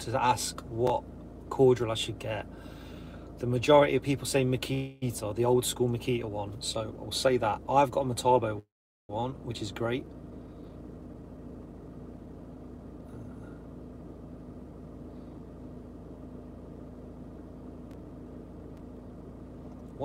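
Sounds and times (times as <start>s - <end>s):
low hum in van cabin: 0.0s - 20.0s
faint steady tone: 9.2s - 20.0s.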